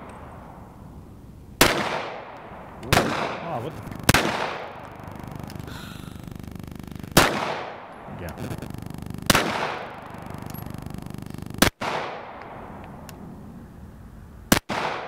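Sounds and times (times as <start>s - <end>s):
pistol shots with echo: 1.6s - 5.1s, 7.1s - 8.0s, 9.3s - 10.4s, 11.6s - 12.8s, 14.5s - 15.0s.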